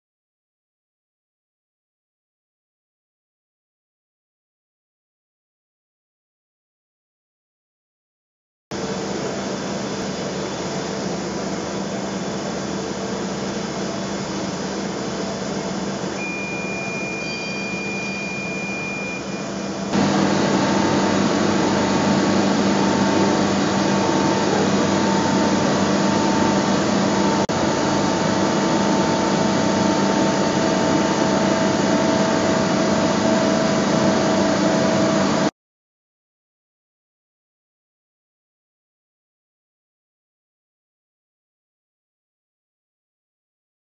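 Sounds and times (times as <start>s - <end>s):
milling machine humming and whirring: 8.8s - 35.5s
machine whining tones: 15.8s - 35.5s.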